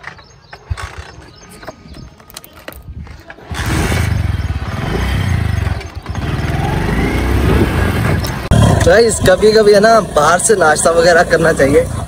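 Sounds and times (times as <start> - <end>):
motorcycle engine running: 3.4 - 12.0.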